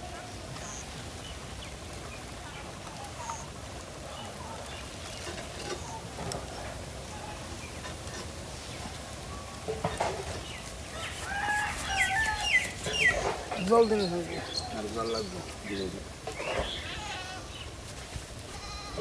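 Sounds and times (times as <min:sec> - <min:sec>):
outdoor hiss: 0:00.0 - 0:19.0
hen clucking: 0:11.0 - 0:17.5.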